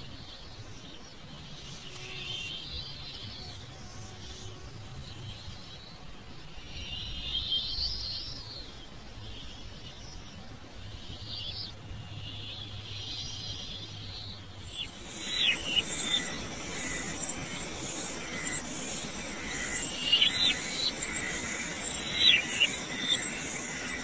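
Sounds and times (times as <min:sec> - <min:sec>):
high insect drone: 0:00.0 - 0:24.0
birds whistling falling notes: 0:14.7 - 0:24.0.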